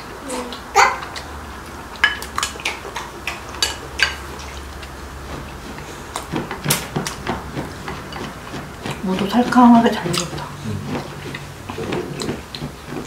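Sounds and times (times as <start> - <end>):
utensils clinking against dishes: 1.9 - 2.8, 5.4 - 12.7.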